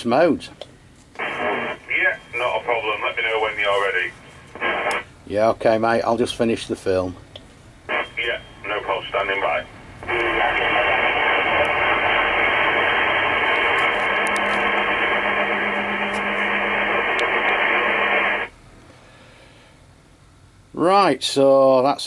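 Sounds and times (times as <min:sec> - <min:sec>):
faint low hum: 0:00.0 - 0:21.0
radio static hiss: 0:01.2 - 0:05.5, 0:07.8 - 0:18.6.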